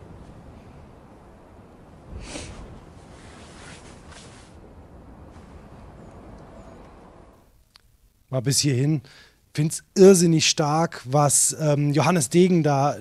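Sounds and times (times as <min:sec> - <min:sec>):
wind-like hiss: 0:00.0 - 0:07.5
short soft noises: 0:02.1 - 0:07.0.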